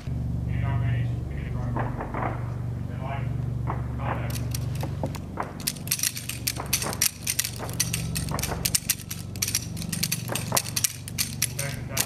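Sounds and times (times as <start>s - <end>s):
steady low hum: 0.0s - 12.0s
pistols firing: 3.6s - 12.0s.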